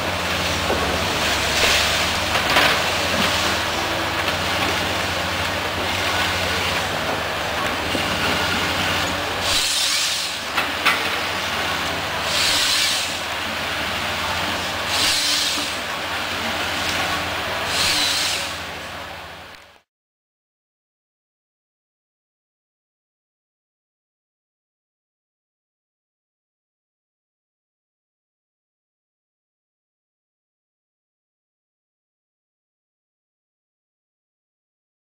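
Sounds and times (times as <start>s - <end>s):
diesel engine humming: 0.0s - 19.8s
hydraulic hissing: 0.4s - 18.9s.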